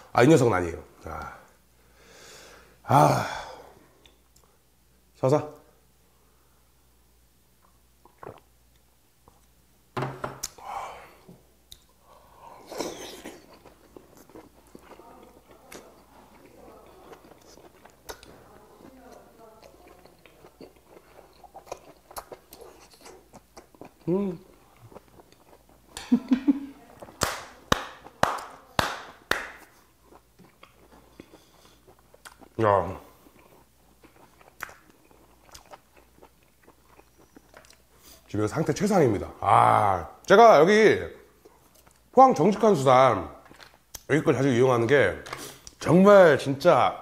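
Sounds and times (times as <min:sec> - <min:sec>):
breathy exhale: 0:01.8 - 0:03.7
soft wet mouth sounds: 0:07.6 - 0:09.6, 0:10.4 - 0:26.1
hand slaps: 0:27.2 - 0:29.7.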